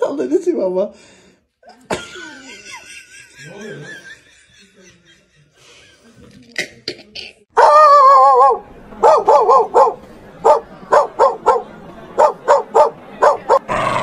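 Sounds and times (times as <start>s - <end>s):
dog howling: 7.6s - 8.6s
dog barking sharply: 7.6s - 11.6s, 12.2s - 13.7s.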